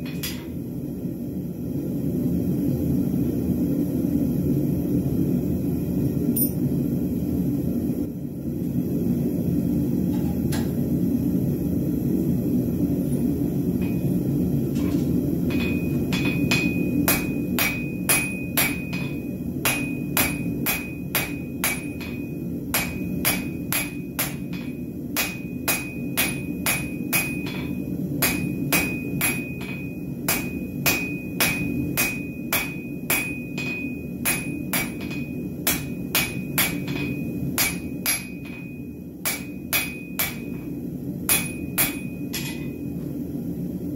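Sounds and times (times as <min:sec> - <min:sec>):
hammer striking steel on anvil: 0:00.0 - 0:00.6, 0:06.4 - 0:06.6, 0:13.8 - 0:42.9
gas forge burner rumble: 0:00.0 - 0:43.9.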